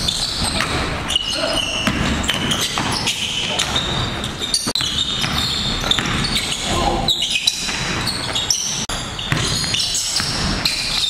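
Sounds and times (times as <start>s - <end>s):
sneaker squeaks: 0.0s - 11.0s
basketball bouncing on hardwood: 1.8s - 3.0s, 4.7s - 6.4s, 9.3s - 10.6s.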